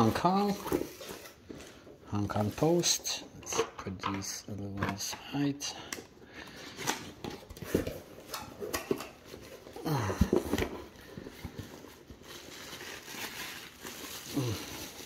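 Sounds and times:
bubble wrap handled: 0:00.0 - 0:03.2, 0:08.3 - 0:15.0.

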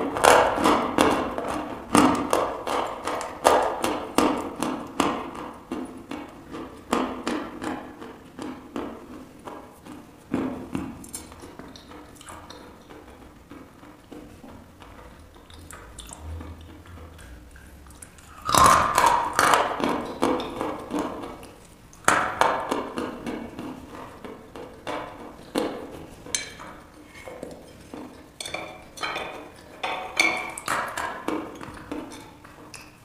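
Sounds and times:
chalk crunching and chewing: 0:15.0 - 0:20.2.

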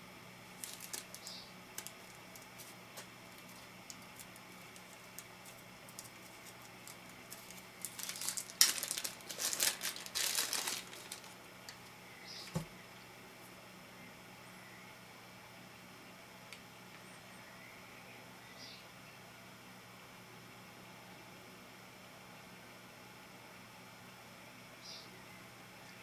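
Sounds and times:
plastic bag crinkling and tearing: 0:00.6 - 0:11.9.

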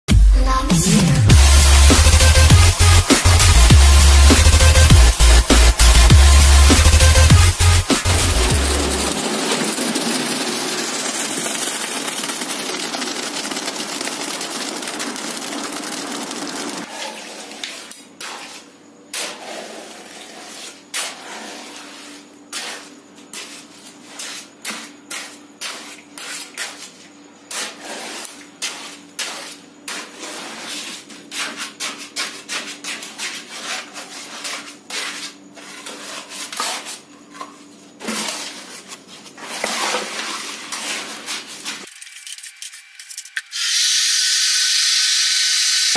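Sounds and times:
scoop scraping wet concrete: 0:07.7 - 0:37.1, 0:38.0 - 0:41.9
concrete pouring from mixer chute: 0:09.1 - 0:16.9.

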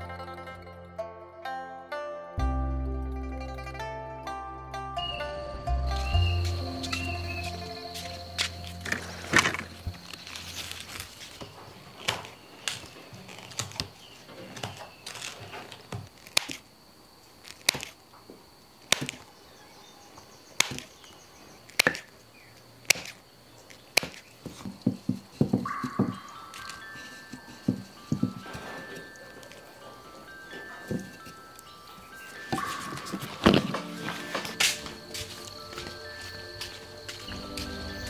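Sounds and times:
scissors snipping: 0:14.6 - 0:16.7, 0:17.4 - 0:18.0, 0:18.9 - 0:19.3, 0:20.6 - 0:21.0, 0:21.7 - 0:22.1, 0:22.8 - 0:24.7.

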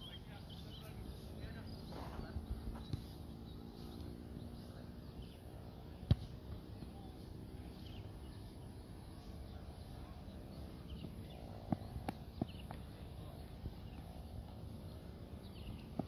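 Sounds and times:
faint bird chirps: 0:00.0 - 0:16.0
football being kicked: 0:02.7 - 0:03.2, 0:06.0 - 0:07.0.

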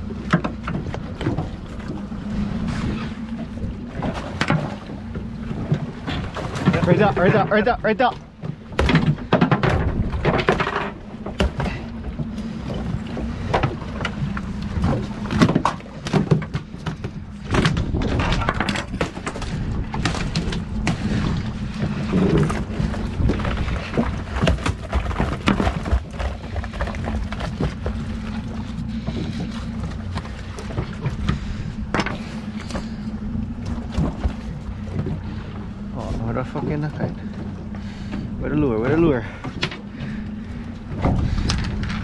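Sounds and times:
boat engine running: 0:00.0 - 0:42.0
gear knocks and clatters: 0:08.3 - 0:33.0, 0:39.4 - 0:42.0.

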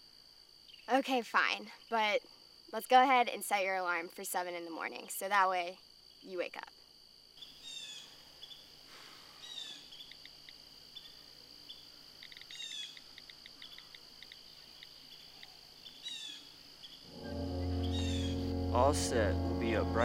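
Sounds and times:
insect drone: 0:00.0 - 0:20.0
insect chirping pulses: 0:00.6 - 0:20.0
music: 0:17.1 - 0:20.0.

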